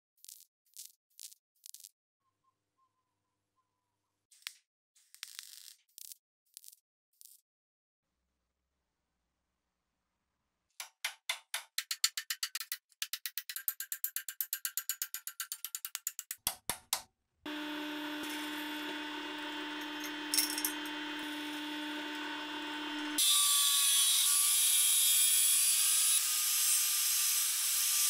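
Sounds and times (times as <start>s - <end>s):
power tool motor humming: 17.5s - 24.6s.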